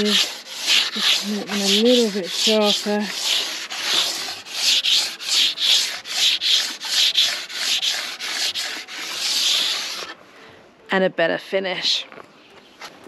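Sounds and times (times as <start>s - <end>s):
file scraping steel edge: 0.0s - 10.2s.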